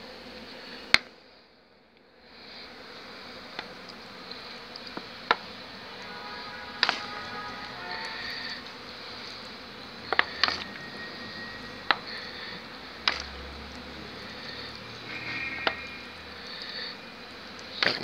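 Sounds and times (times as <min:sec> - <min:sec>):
honeybees buzzing: 0:00.0 - 0:18.0.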